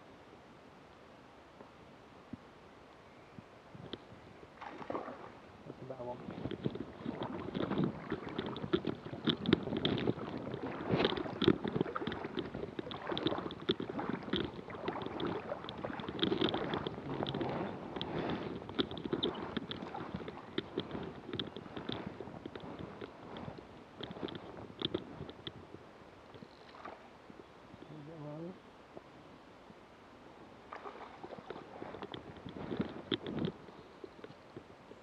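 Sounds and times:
river water sloshing and lapping: 4.4s - 27.8s, 28.5s - 35.0s
small splashes and gurgles: 4.6s - 5.4s, 6.2s - 25.4s, 26.6s - 27.2s, 30.7s - 33.4s.

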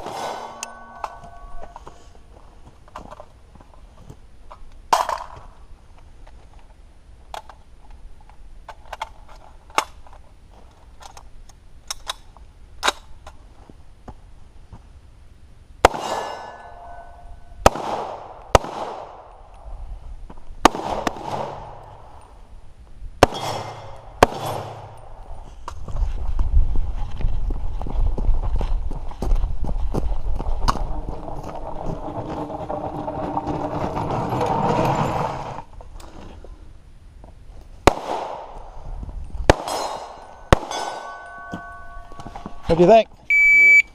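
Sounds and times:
gunshots with long echo: 15.8s - 16.6s, 17.6s - 19.4s, 20.6s - 22.1s, 23.2s - 25.2s, 37.8s - 38.8s, 39.5s - 41.4s.

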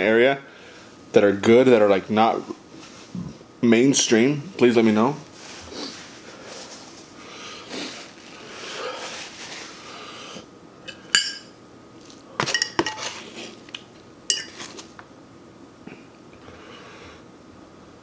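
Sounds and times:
fork clinking against dishes: 14.3s - 14.7s.

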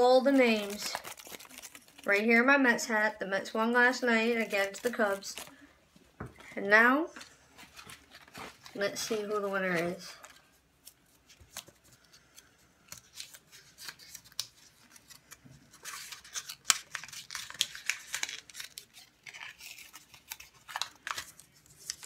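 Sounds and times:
paper slips rustling: 0.0s - 2.4s, 3.6s - 5.6s, 7.2s - 12.0s.

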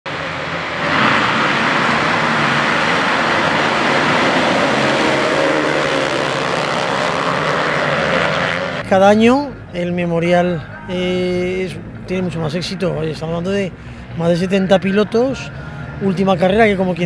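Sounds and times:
motocross bikes revving and accelerating: 0.8s - 8.9s.

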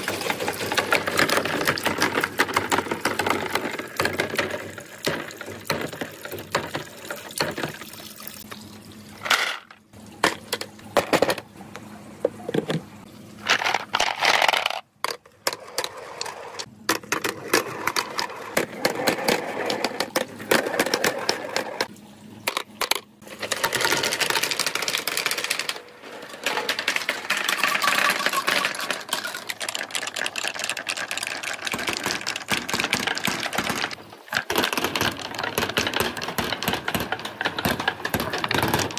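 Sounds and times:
balls clattering down wooden run: 0.0s - 8.0s, 9.2s - 11.5s, 12.3s - 21.9s, 22.5s - 38.9s
running water: 4.8s - 11.0s.

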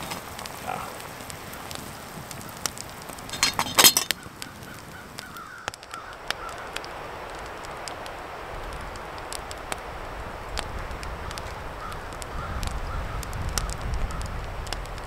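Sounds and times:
campfire crackling and popping: 0.0s - 15.0s
iron lid clanking on pot: 3.3s - 4.2s.

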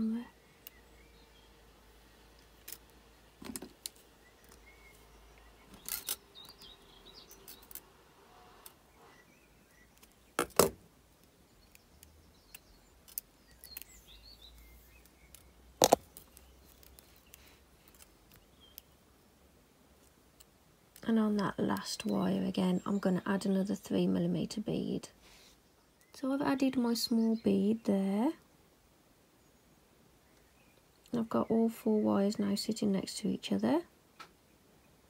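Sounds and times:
wire clicking and tapping: 15.0s - 18.9s.

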